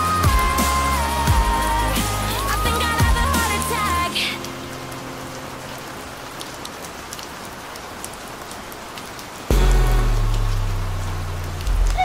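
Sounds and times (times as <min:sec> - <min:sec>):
music with heavy bass: 0:00.0 - 0:03.6, 0:09.5 - 0:12.0
steady rain: 0:00.0 - 0:12.0.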